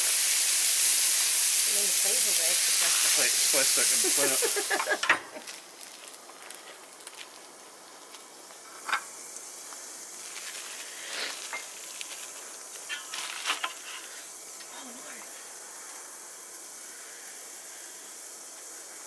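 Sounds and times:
patties sizzling on a griddle: 0.0s - 19.0s.

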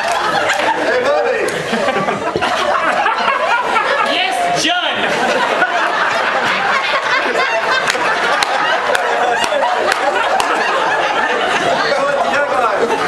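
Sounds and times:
crowd laughing and chattering: 0.0s - 13.0s
sharp claps: 7.8s - 10.6s.

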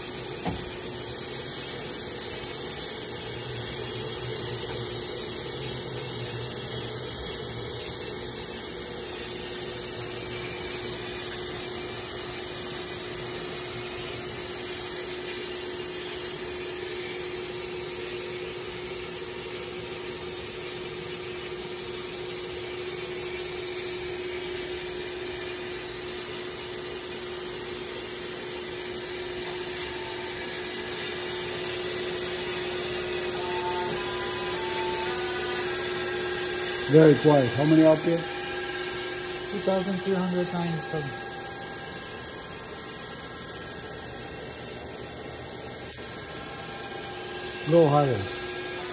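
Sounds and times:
machine humming and whirring: 0.0s - 48.9s.

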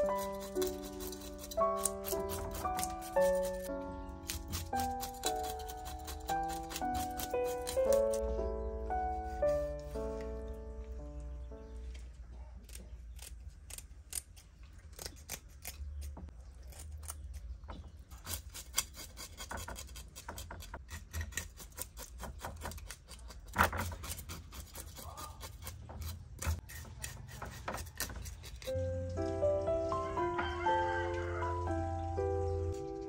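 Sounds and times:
knife scraping fish scales: 0.0s - 3.7s, 4.3s - 8.2s, 18.2s - 28.8s
scissors snipping: 0.0s - 8.2s, 12.6s - 17.5s.

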